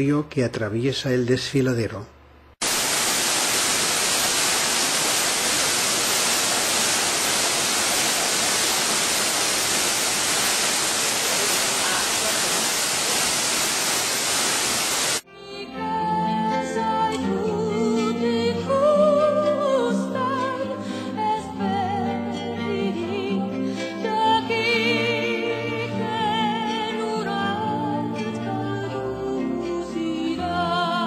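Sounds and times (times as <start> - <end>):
waterfall roaring: 2.6 - 15.2
soft music: 15.2 - 31.0.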